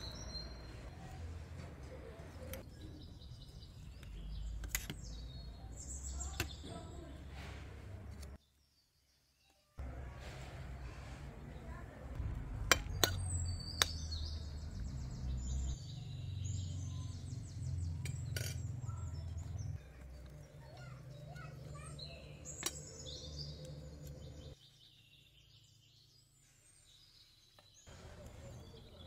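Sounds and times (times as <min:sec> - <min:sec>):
small birds chirping: 0:00.0 - 0:29.0
low background rumble: 0:10.8 - 0:15.8.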